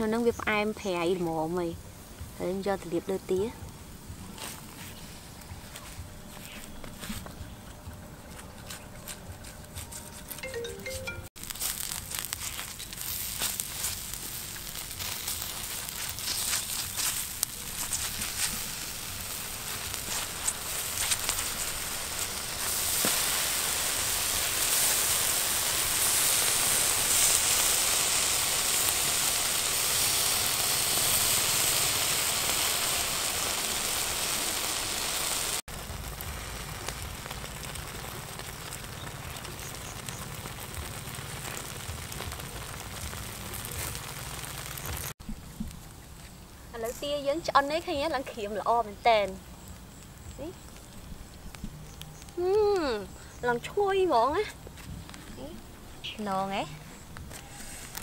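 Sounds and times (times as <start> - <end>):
charcoal fire crackling: 0.0 - 58.0
duck sizzling on spit: 0.1 - 58.0.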